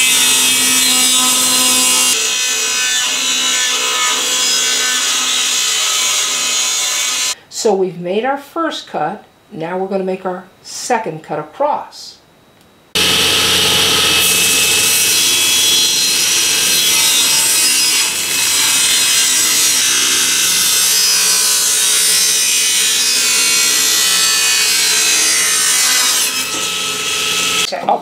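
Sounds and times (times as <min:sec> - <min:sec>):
saw blade cutting board: 0:00.0 - 0:07.4, 0:13.0 - 0:27.7
table saw motor hum: 0:00.0 - 0:07.4, 0:13.0 - 0:27.7.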